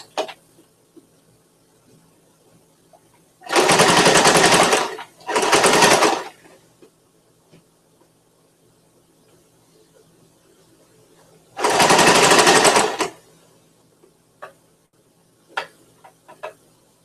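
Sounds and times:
sewing machine stitching: 0:03.4 - 0:06.5, 0:11.6 - 0:13.2.

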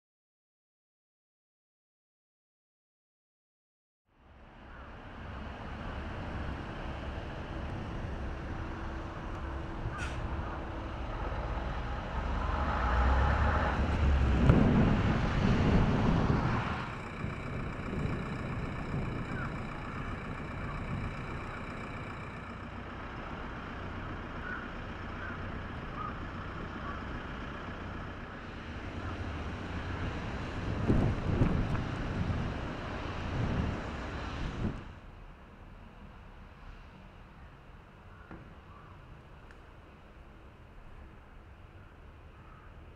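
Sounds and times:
distant traffic: 0:04.1 - 0:42.9
vehicle passing: 0:04.9 - 0:34.9.

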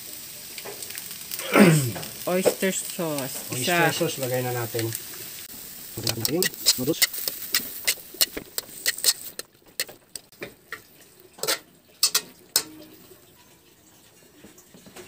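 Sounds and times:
metal turner scraping a wok: 0:06.0 - 0:10.3, 0:11.4 - 0:12.8.

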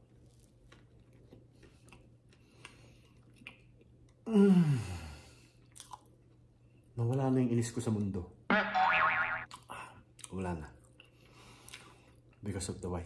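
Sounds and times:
person chewing: 0:00.1 - 0:04.2, 0:05.6 - 0:06.4.

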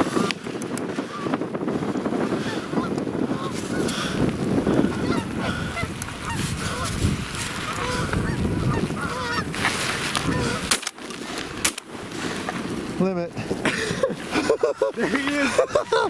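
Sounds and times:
geese honking: 0:02.4 - 0:10.8, 0:14.3 - 0:16.0.

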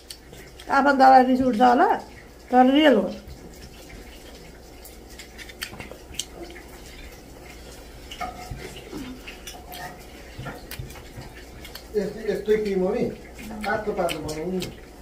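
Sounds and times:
eating clicks and mouth sounds: 0:00.0 - 0:00.8, 0:04.8 - 0:15.0.

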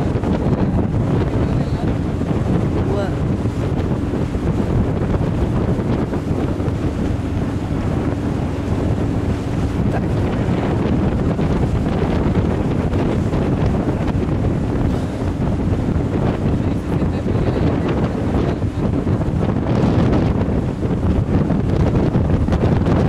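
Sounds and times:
boat engine running: 0:00.0 - 0:23.0
rush of choppy water: 0:00.0 - 0:23.0
wind buffeting microphone: 0:00.0 - 0:23.0.

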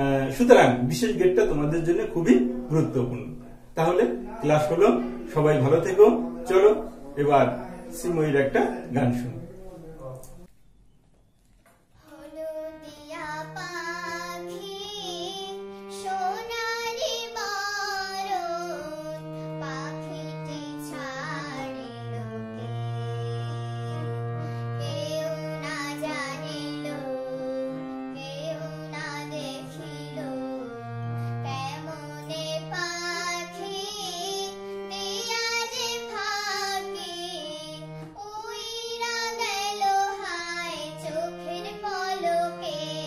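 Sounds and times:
harmonium notes: 0:00.0 - 0:10.4, 0:12.0 - 0:43.0
girl singing: 0:12.0 - 0:43.0.

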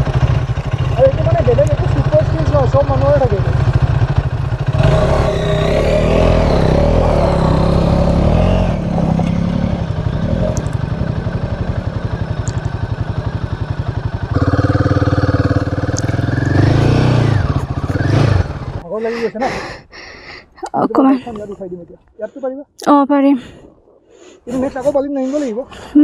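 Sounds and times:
motorcycle engine revving: 0:00.0 - 0:18.9.

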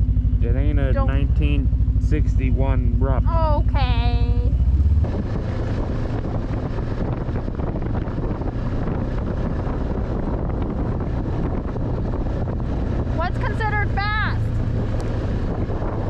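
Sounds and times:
snowmobile engine running: 0:00.0 - 0:16.0
wind buffeting microphone: 0:00.4 - 0:16.0.

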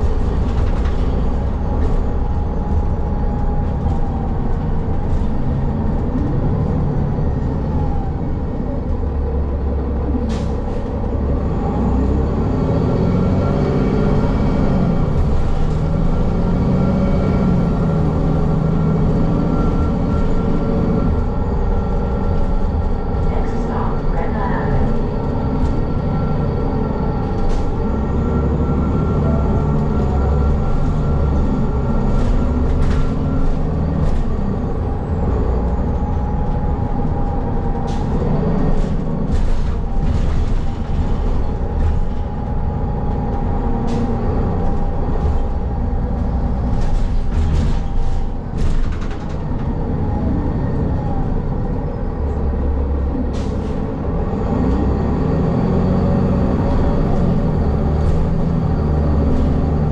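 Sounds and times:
rattles and clicks: 0:00.0 - 0:06.7, 0:35.6 - 0:49.9
bus engine and road rumble: 0:00.0 - 0:59.9.

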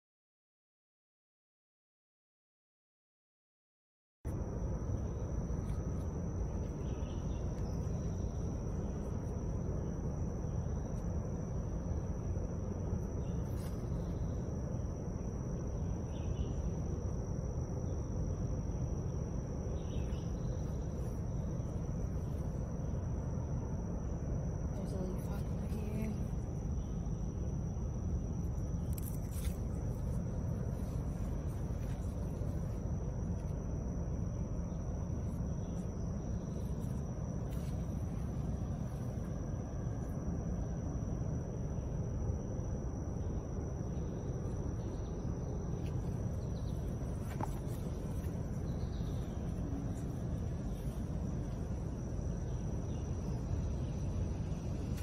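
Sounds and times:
faint high steady tone: 0:04.3 - 0:55.0
low outdoor rumble: 0:04.3 - 0:55.0
thin high-pitched whine: 0:04.3 - 0:55.0
faint bird chirps: 0:05.0 - 0:11.1, 0:13.1 - 0:17.0, 0:19.0 - 0:23.1, 0:43.2 - 0:55.0.

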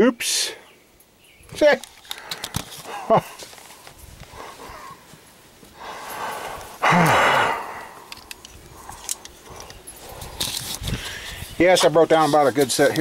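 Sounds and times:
man sighing: 0:05.8 - 0:08.1.

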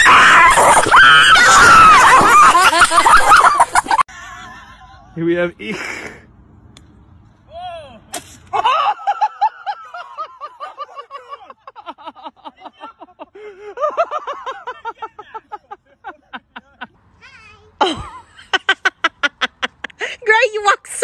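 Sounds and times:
people laughing hard: 0:00.0 - 0:05.1, 0:08.5 - 0:16.9, 0:18.3 - 0:20.0
sharp crack: 0:08.0 - 0:08.6.

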